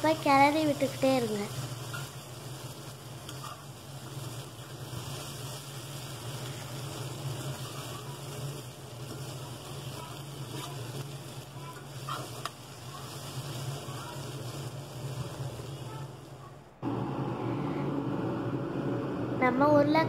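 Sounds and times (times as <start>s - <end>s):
potatoes sizzling in oil: 0.0s - 17.3s
spatula clicking against pan: 3.2s - 3.6s.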